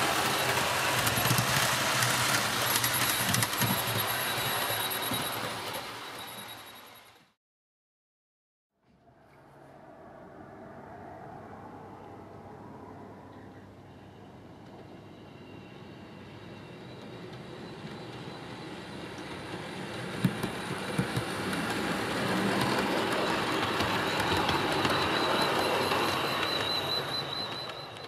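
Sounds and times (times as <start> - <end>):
model train running on track: 0.0 - 7.3, 14.7 - 28.0.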